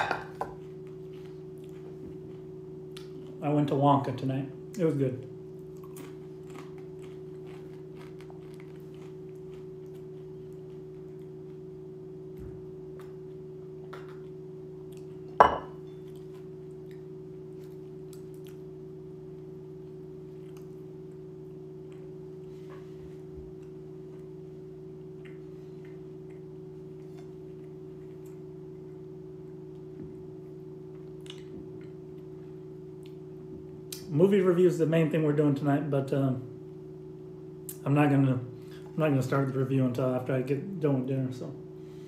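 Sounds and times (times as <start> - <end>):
steady low hum: 0.0 - 42.0
faint chewing and mouth clicks: 5.7 - 11.6, 16.0 - 18.6, 20.3 - 21.2, 25.2 - 28.4, 31.0 - 32.3.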